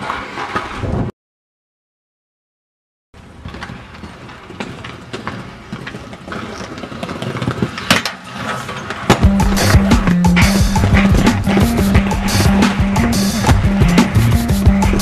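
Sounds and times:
skate wheels rolling on paving: 0:00.0 - 0:01.1, 0:03.2 - 0:15.0
skates clacking on metal bench: 0:03.3 - 0:15.0.

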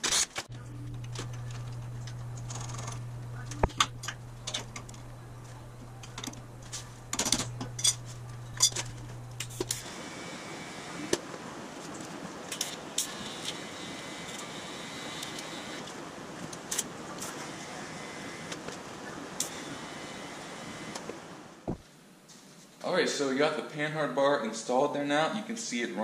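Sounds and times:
welding arc hissing: 0:00.6 - 0:11.1.

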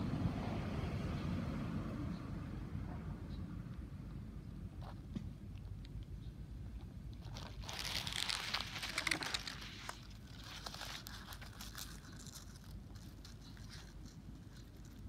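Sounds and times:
leaves rustling and crinkling: 0:06.8 - 0:15.0.

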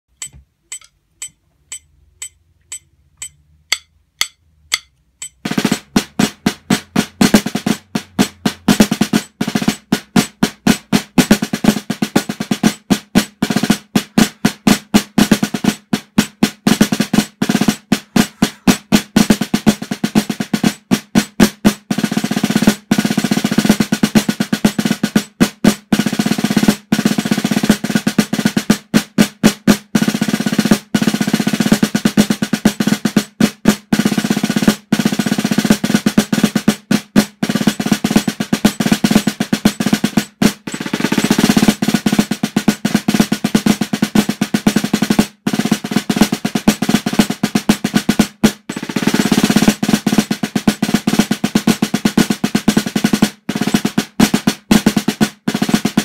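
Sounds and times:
count-in clicks: 0:00.1 - 0:05.4
muffled snare drum solo: 0:03.2 - 0:56.0.

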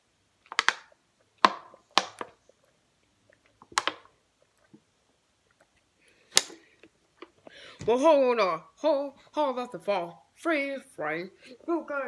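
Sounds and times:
plastic water bottle crinkling: 0:00.4 - 0:02.7, 0:03.3 - 0:04.8.

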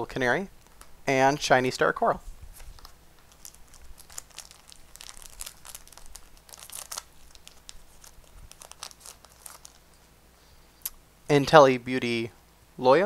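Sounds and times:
foil wrapper tearing and crinkling: 0:02.6 - 0:10.0.

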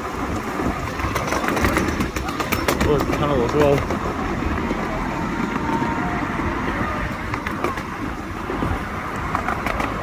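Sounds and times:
miniature train rumbling on track: 0:00.0 - 0:10.0.

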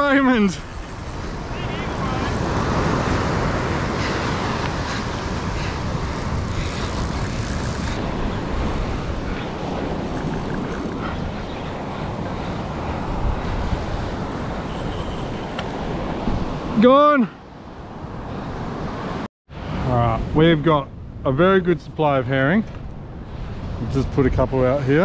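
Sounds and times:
wind buffeting microphone: 0:00.0 - 0:16.7
surf washing onto beach: 0:00.0 - 0:16.8.

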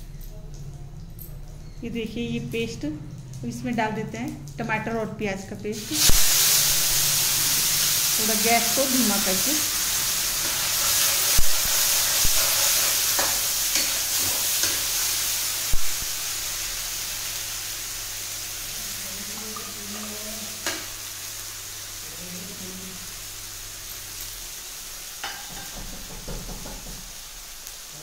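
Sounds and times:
paste sizzling in hot oil: 0:05.7 - 0:28.0
spoon knocking against pan: 0:25.2 - 0:27.0.

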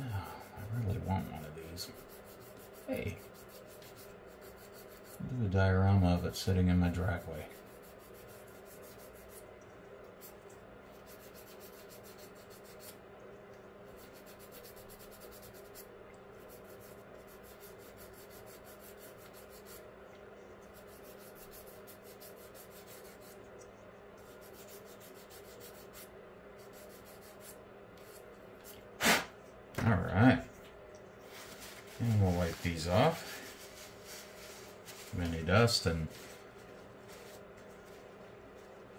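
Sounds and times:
faint steady hum: 0:00.0 - 0:38.9
sanding stick scratching plastic: 0:00.4 - 0:05.3, 0:06.8 - 0:09.4, 0:10.2 - 0:13.0, 0:14.0 - 0:19.8, 0:20.6 - 0:23.4, 0:24.2 - 0:28.2.

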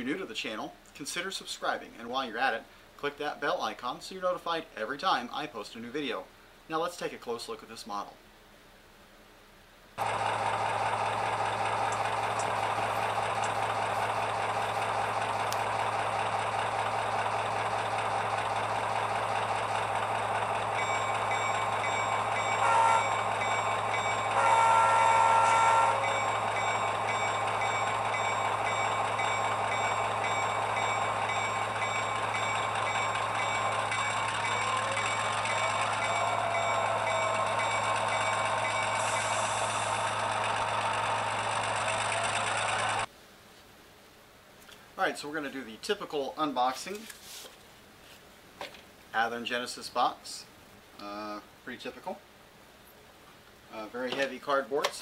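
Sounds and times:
diesel locomotive engine running: 0:10.0 - 0:43.1
locomotive bell ringing: 0:16.2 - 0:43.1
locomotive horn blasts: 0:22.4 - 0:26.4.

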